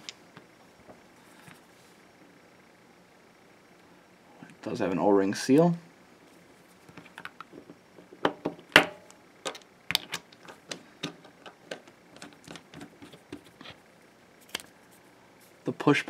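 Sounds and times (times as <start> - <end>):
metal parts clicking and tapping: 8.8 - 12.8.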